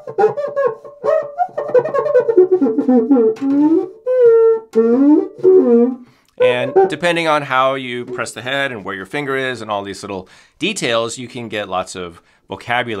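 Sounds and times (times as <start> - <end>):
friction drum squeaking: 0.0 - 8.3.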